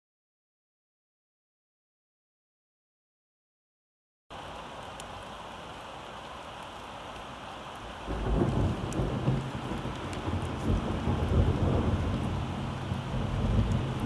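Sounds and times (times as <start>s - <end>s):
steady rain falling: 4.3s - 14.0s
low rumble of thunder: 8.1s - 14.0s.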